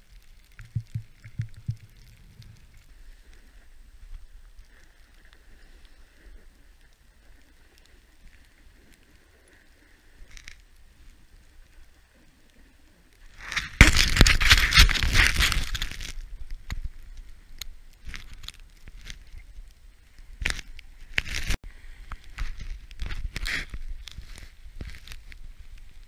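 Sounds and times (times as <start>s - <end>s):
snow scraping and crackling: 0.0s - 26.0s.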